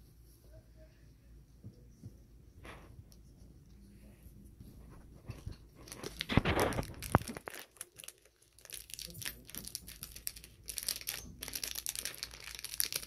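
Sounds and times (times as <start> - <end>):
foil packet crinkling: 5.7 - 13.0.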